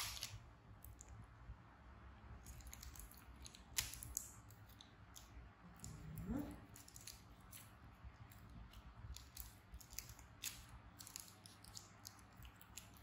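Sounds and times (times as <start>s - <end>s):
plastic crinkles and ticks: 8.3s - 13.0s.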